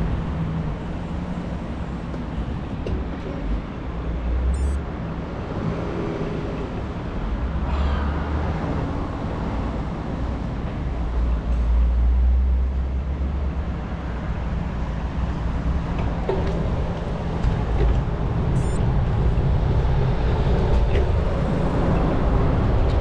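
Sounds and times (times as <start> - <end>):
road traffic: 0.0 - 23.0
wind rumble on microphone: 12.9 - 23.0.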